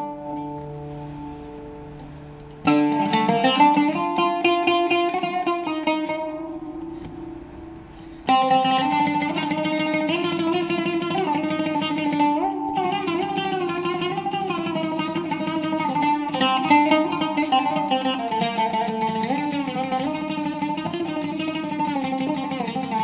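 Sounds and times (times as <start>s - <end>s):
oud plucking: 0.0s - 23.0s.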